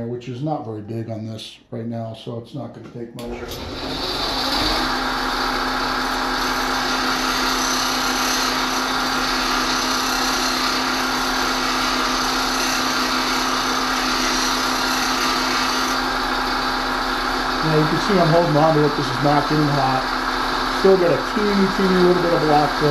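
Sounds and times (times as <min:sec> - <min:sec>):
bench grinder motor hum: 0:03.4 - 0:22.9.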